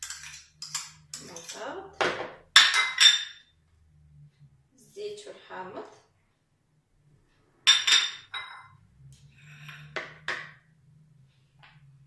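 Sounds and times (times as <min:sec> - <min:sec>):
spoon clinking against bowl: 0:00.0 - 0:01.6
spoon scraping bowl: 0:00.0 - 0:01.7.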